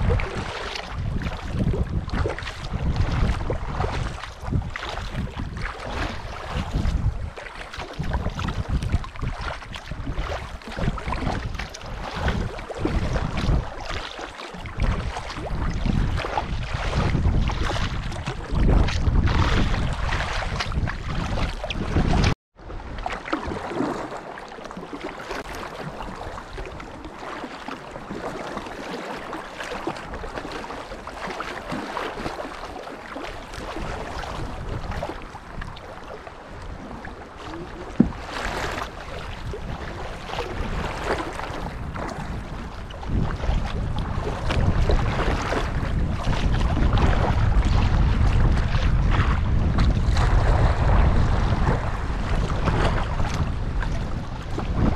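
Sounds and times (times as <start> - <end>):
wind gusting on microphone: 0.0 - 13.9, 14.6 - 23.0, 33.5 - 54.9
water splashing: 0.0 - 54.9.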